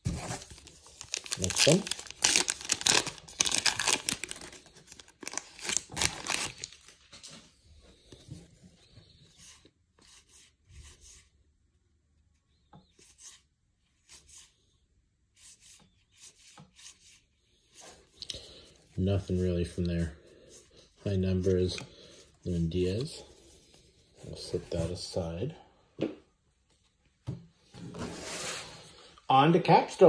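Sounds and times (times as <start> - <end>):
wrapper tearing and crinkling: 0.6 - 7.0.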